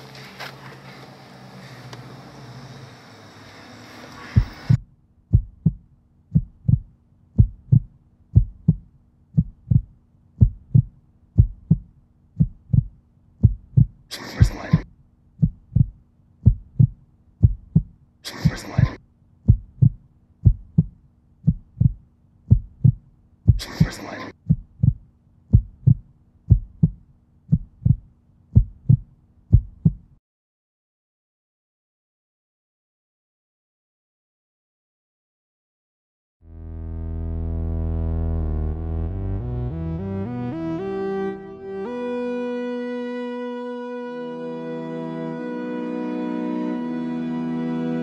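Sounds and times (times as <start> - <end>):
low hum: 0.1 - 28.0, 36.5 - 48.0
heartbeat: 4.3 - 30.2
short breathy sounds: 14.0 - 14.9, 18.2 - 19.0, 23.5 - 24.5.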